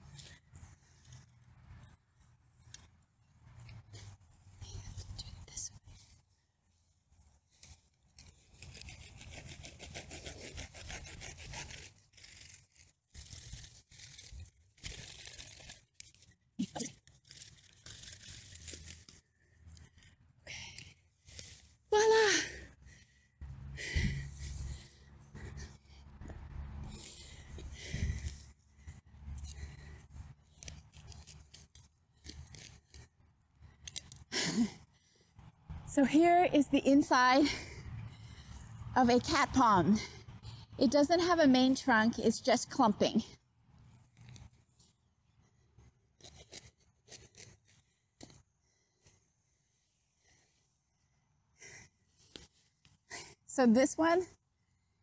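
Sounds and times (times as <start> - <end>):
hand saw rasping through roots: 7.5 - 19.2, 23.8 - 33.2, 46.2 - 49.2.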